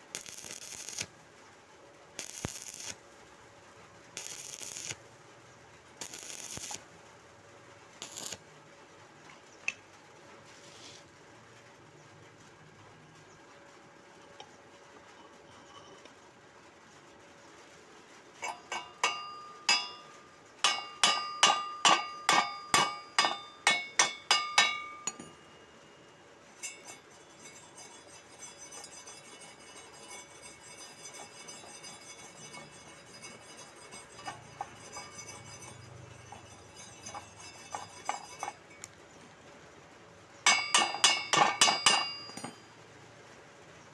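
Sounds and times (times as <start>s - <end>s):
wire brush scratching metal: 0.0s - 1.1s, 2.2s - 3.0s, 4.2s - 5.0s, 6.0s - 6.8s, 8.0s - 8.4s, 18.4s - 25.5s, 26.6s - 38.9s, 40.5s - 42.6s
chipping hammer clinking on metal: 18.4s - 25.6s, 40.5s - 42.7s.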